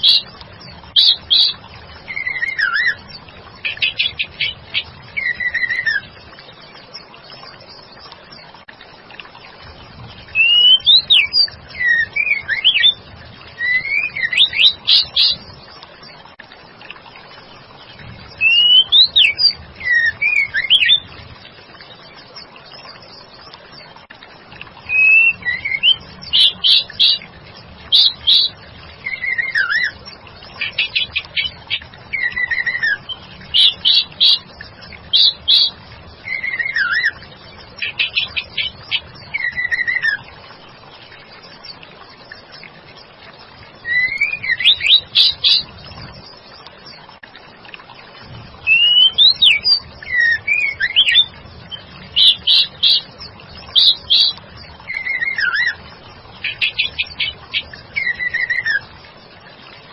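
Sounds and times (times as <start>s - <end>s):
songbird whistled calls: 0.0s - 0.3s, 0.9s - 3.0s, 3.6s - 6.0s, 10.3s - 13.0s, 13.6s - 15.4s, 18.3s - 21.1s, 24.9s - 27.2s, 27.9s - 30.0s, 30.6s - 34.5s, 35.1s - 37.2s, 37.8s - 40.2s, 43.8s - 45.7s, 48.6s - 53.1s, 53.7s - 55.8s, 56.4s - 58.8s.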